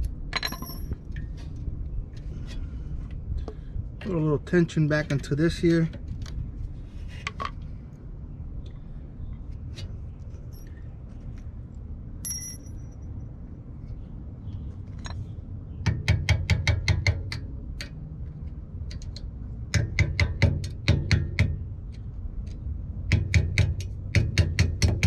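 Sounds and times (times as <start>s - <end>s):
metallic clinks: 0.4s - 1.0s, 10.5s - 10.8s, 12.2s - 13.1s.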